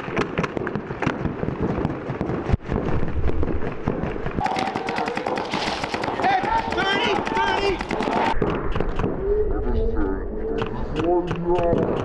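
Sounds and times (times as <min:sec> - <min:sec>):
paintball markers firing: 0:00.0 - 0:09.2, 0:10.6 - 0:12.0.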